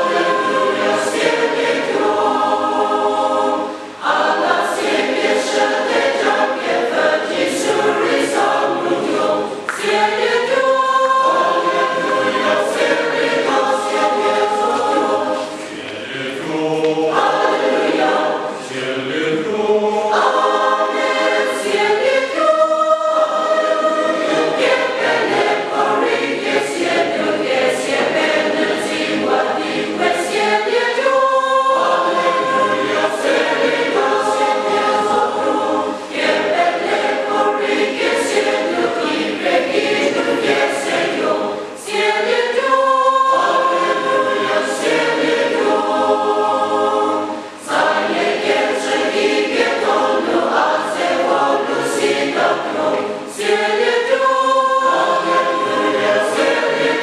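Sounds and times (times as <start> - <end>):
mixed choir singing: 0.0 - 57.0.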